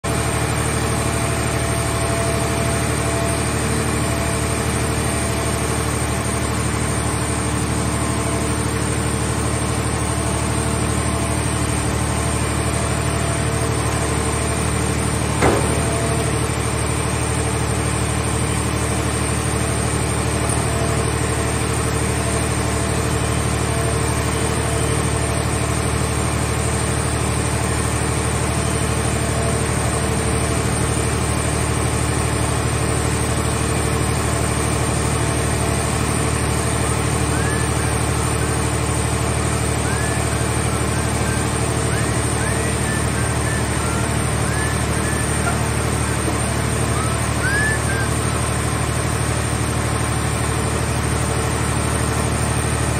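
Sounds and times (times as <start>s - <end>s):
baler power unit running: 0.1s - 52.9s
sharp knock: 15.4s - 16.2s.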